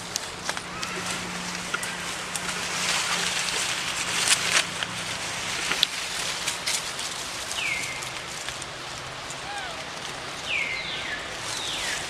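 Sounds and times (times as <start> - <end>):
dry leaves rustling and crackling: 0.0 - 12.0
short high call falling in pitch: 9.4 - 9.9.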